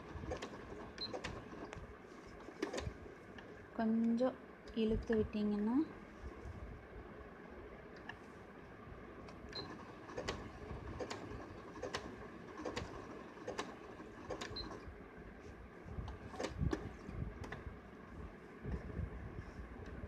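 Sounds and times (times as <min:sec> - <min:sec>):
sewing machine stitching: 0:00.0 - 0:01.8, 0:09.6 - 0:14.9
faint steady hum: 0:00.0 - 0:20.0.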